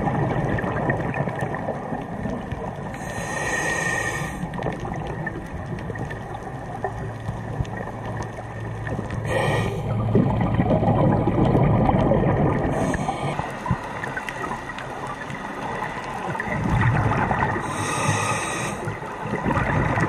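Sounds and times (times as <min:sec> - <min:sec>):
gurgle of exhaled bubbles: 0:00.0 - 0:20.0
regulator hissing inhalations: 0:03.0 - 0:04.4, 0:17.6 - 0:18.9.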